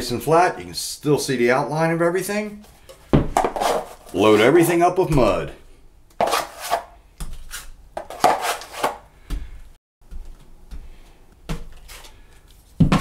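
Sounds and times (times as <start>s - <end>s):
knife spreading compound: 3.4s - 4.8s, 6.2s - 9.1s
taping knife scraping metal pan: 6.2s - 9.0s.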